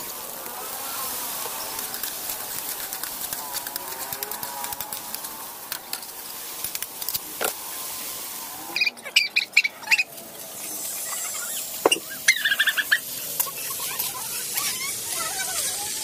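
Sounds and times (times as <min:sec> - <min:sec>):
food sizzling in a wok: 0:00.0 - 0:08.8, 0:09.8 - 0:16.0
high repeated squeaks: 0:10.9 - 0:13.0.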